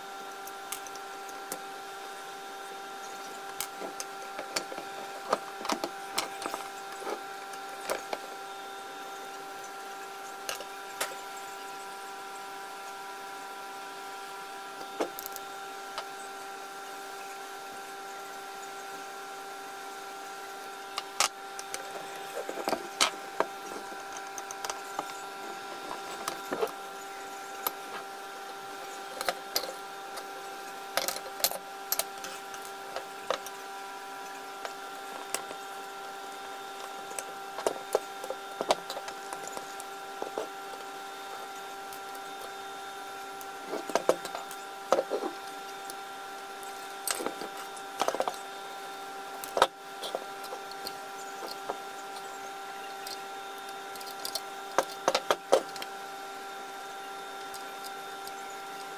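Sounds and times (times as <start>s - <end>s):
steady background hum: 0.0s - 58.9s
tool parts clicking and tapping: 3.5s - 7.2s, 7.8s - 8.4s, 10.5s - 11.2s, 21.0s - 26.8s, 28.8s - 30.3s, 30.9s - 33.6s, 36.8s - 42.5s, 43.7s - 46.0s, 46.6s - 48.4s, 49.4s - 51.8s, 53.9s - 55.9s.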